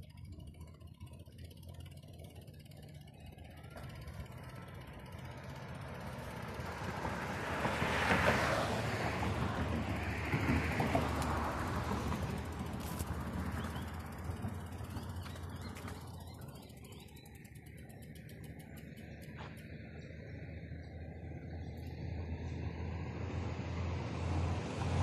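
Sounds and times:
steady low rumble: 0.0s - 7.4s
traffic passing close by: 0.0s - 25.0s.

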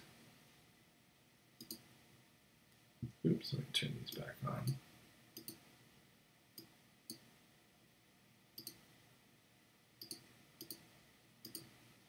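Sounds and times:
faint computer mouse clicks: 1.6s - 1.9s, 5.4s - 5.6s, 8.6s - 8.8s, 10.0s - 11.8s.

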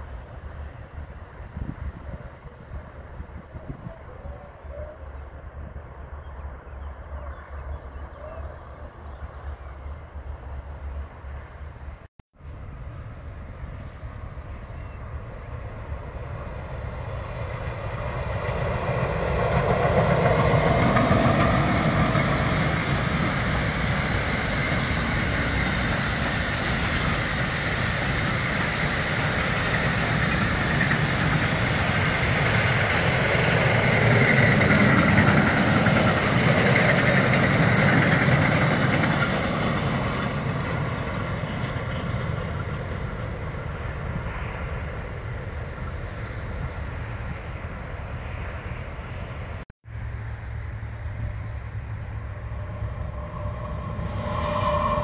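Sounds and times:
train wheels rumbling and clattering: 15.6s - 46.7s.

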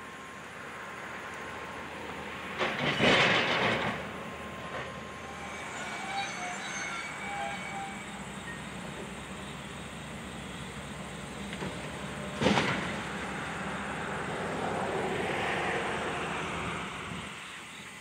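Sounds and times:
excavator engine hum: 0.0s - 18.0s
loud crash of debris: 2.6s - 4.1s
short metallic squeals: 4.6s - 9.4s.

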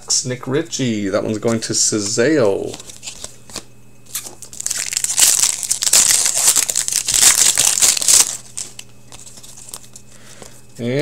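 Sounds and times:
foil wrapper crinkling: 2.6s - 10.0s.

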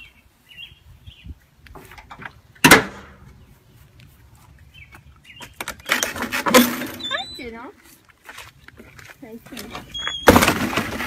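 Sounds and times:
gate clattering and rattling: 5.7s - 7.3s, 9.8s - 11.0s.

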